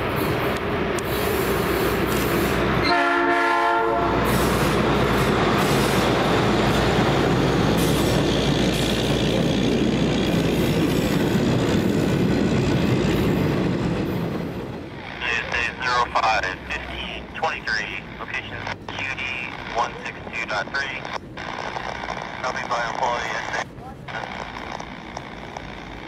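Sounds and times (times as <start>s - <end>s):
train wheels rumbling on rails: 0.0s - 26.0s
truck horn blast: 2.8s - 4.3s.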